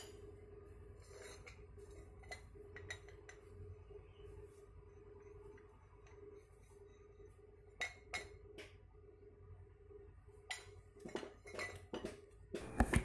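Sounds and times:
faint steady hum: 0.0s - 13.0s
metal clinks and knocks: 10.6s - 13.0s.

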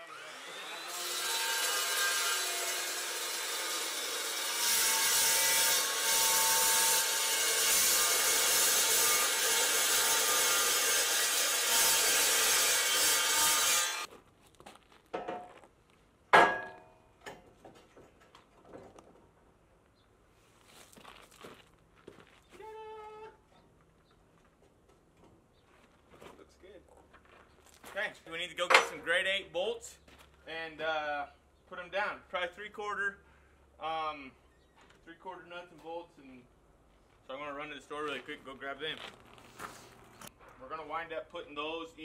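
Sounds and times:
chop saw cutting steel: 0.0s - 14.1s
metal clang: 16.3s - 17.4s, 28.7s - 29.0s.

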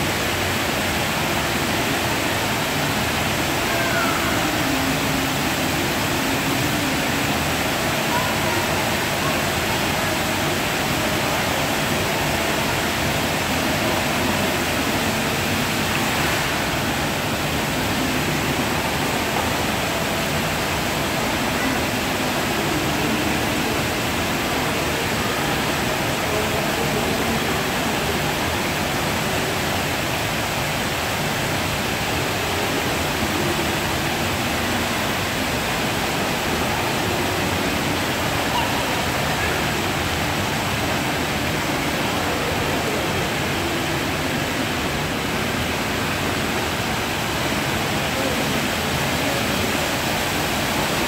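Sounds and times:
fountain water splashing: 0.0s - 51.0s.

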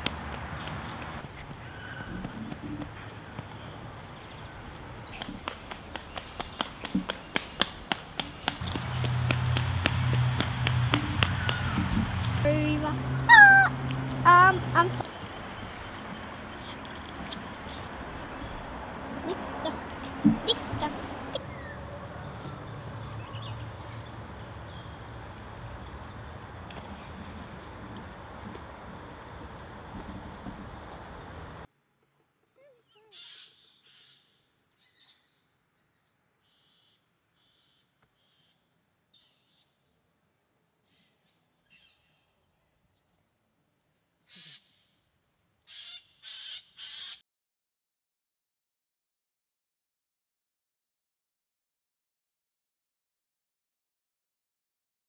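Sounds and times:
bird calls: 0.1s - 31.7s.

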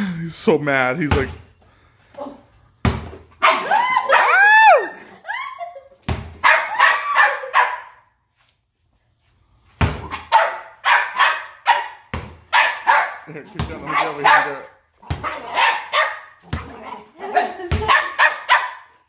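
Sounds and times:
puppy barking and yelping: 3.4s - 4.4s, 6.4s - 8.0s, 10.1s - 19.0s.

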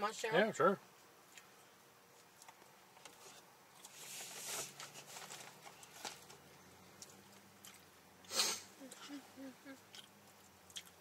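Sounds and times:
soft rustle: 0.9s - 7.4s
chewing mouth clicks and smacks: 9.9s - 11.0s.

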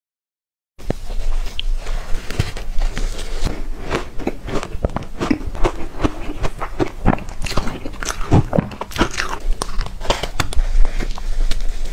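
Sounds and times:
person chewing with mouth clicks: 3.4s - 11.9s.

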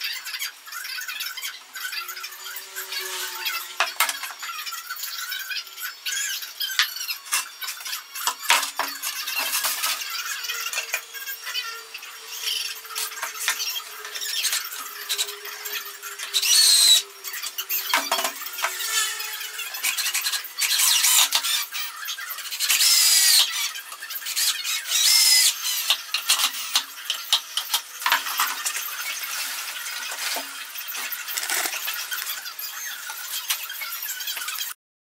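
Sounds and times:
cordless drill driving screws: 16.3s - 17.0s, 22.6s - 23.6s, 24.3s - 26.8s.

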